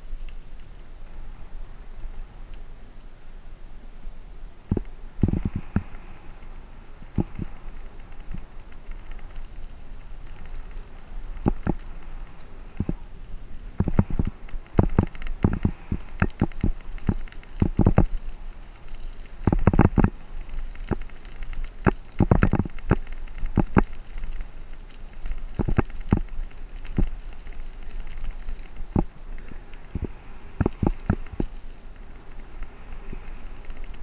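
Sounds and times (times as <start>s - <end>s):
wind rumble on microphone: 0.0s - 34.0s.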